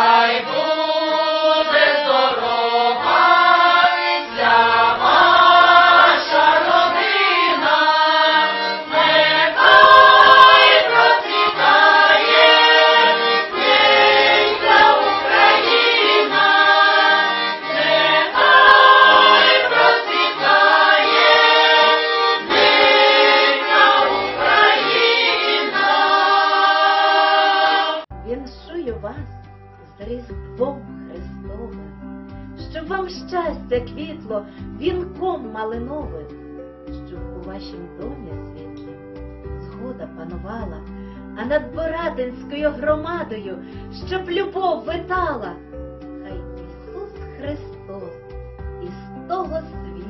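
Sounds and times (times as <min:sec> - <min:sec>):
accordion: 0:00.0 - 0:28.1
women's choir singing: 0:00.0 - 0:28.1.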